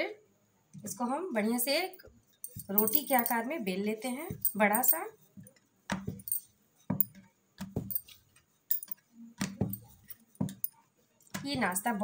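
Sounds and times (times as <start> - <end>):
bangles jingling: 2.4 - 3.6, 4.3 - 5.1, 6.1 - 7.2, 7.8 - 9.0, 9.6 - 10.8.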